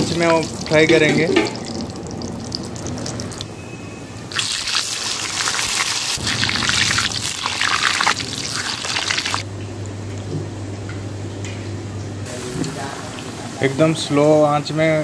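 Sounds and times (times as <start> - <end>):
potatoes deep-frying in oil: 0.0 - 3.6, 4.3 - 9.4.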